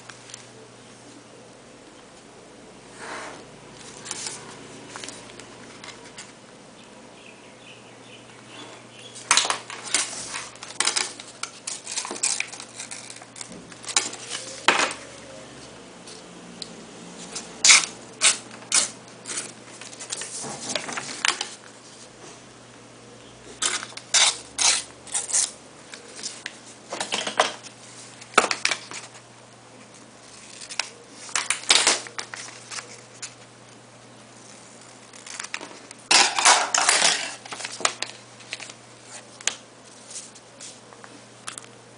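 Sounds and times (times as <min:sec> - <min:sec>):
paper crackling: 0:03.8 - 0:06.4, 0:09.2 - 0:15.0, 0:17.2 - 0:22.1, 0:29.9 - 0:33.5, 0:34.4 - 0:40.8.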